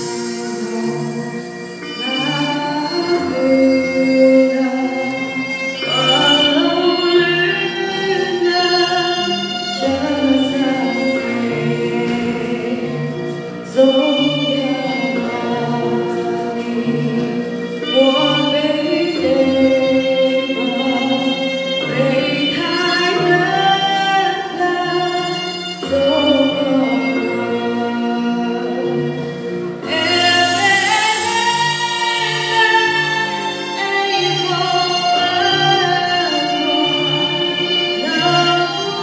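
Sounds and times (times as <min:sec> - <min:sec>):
woman singing slow song: 0:00.0 - 0:13.1, 0:29.8 - 0:39.0
string-like instrumental accompaniment: 0:00.0 - 0:39.0.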